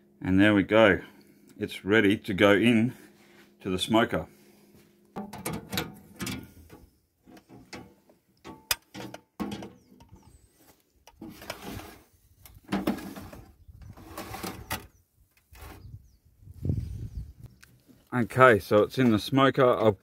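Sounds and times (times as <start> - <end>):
metal tray knocks and scrapes: 5.2 - 10.2, 12.7 - 14.8.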